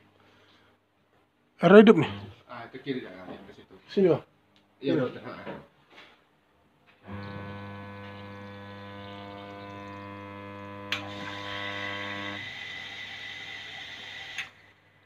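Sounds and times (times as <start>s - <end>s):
washing machine electrical hum: 7.0s - 14.6s.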